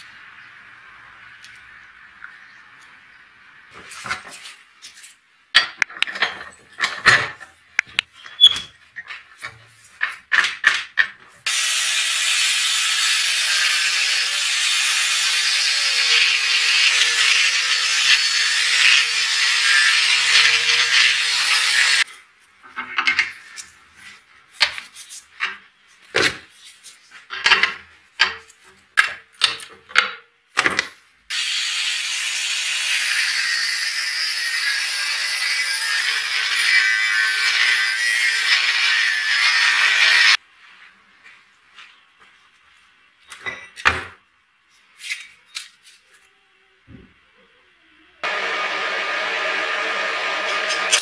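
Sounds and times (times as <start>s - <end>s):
angle grinder cutting steel: 11.5s - 22.1s, 31.3s - 40.4s, 48.2s - 51.0s.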